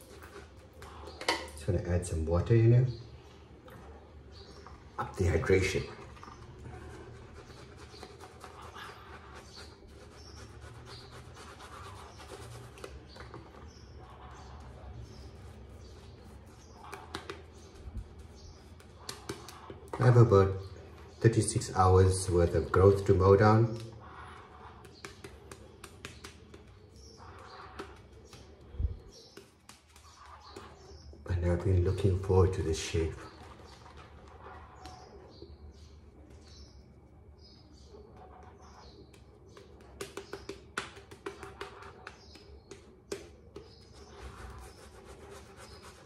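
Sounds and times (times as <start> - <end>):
shaving brush squishing lather: 5.0 - 20.3, 21.0 - 35.3, 38.2 - 46.0.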